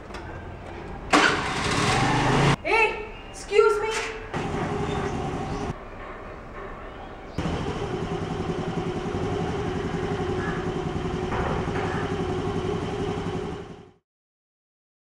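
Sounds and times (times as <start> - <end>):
scooter engine idling: 1.2 - 2.6, 4.4 - 5.7, 7.4 - 14.0.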